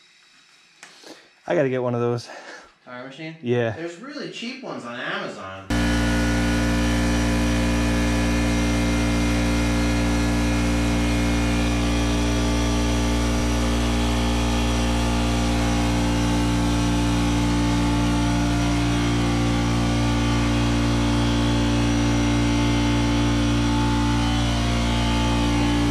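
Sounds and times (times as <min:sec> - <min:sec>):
engine running steadily: 0:05.7 - 0:25.9.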